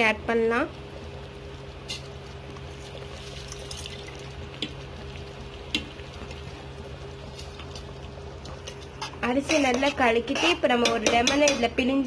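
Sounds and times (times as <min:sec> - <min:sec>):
steady low hum: 0:00.0 - 0:12.0
water splashing and bubbling: 0:01.0 - 0:09.0.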